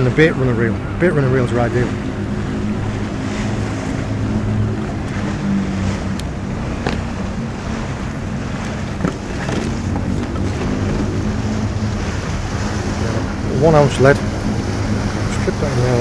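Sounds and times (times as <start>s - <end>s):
boat engine drone: 0.0s - 16.0s
wind on microphone: 0.0s - 16.0s.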